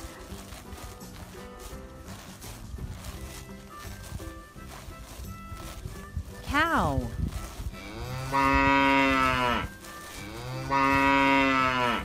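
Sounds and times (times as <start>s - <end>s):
cow mooing: 7.8s - 12.0s.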